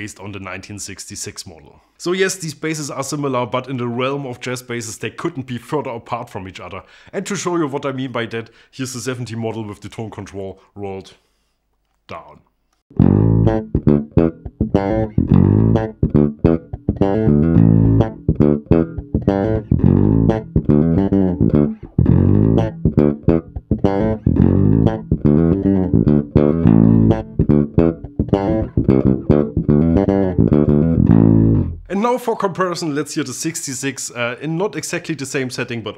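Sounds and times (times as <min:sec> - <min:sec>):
electric bass plucked notes: 0:12.9 - 0:31.9.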